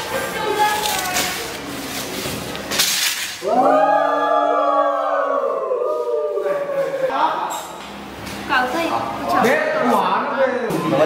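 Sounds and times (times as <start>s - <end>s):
rustling noise: 0.0s - 3.4s.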